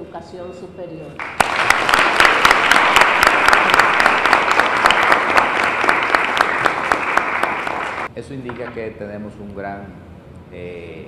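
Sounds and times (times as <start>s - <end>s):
people applauding: 1.2s - 8.1s.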